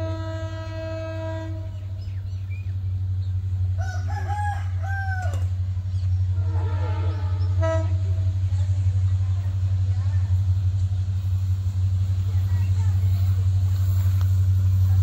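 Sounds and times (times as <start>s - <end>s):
locomotive horn: 0.0s - 2.3s, 6.2s - 9.1s
low steady rumble: 0.0s - 15.0s
rooster crowing: 3.8s - 5.5s.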